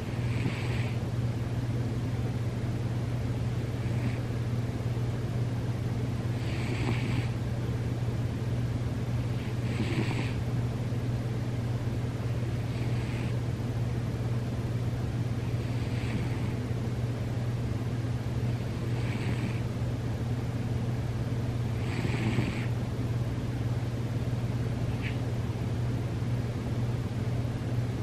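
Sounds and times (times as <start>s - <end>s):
cat snoring: 0.0s - 1.0s, 3.8s - 4.3s, 6.3s - 7.4s, 9.4s - 10.4s, 12.6s - 13.4s, 15.5s - 16.6s, 18.5s - 19.7s, 21.7s - 22.8s
steady low hum: 0.0s - 28.0s.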